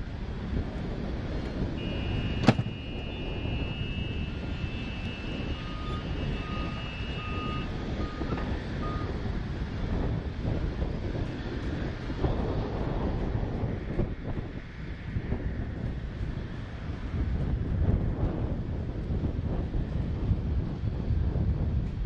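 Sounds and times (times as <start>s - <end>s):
wind on microphone: 0.0s - 22.0s
short beeps: 1.8s - 9.1s
sharp click: 2.4s - 2.7s.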